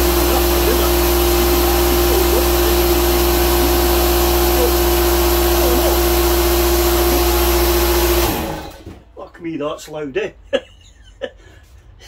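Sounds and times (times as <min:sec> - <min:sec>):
air compressor motor running: 0:00.0 - 0:09.1.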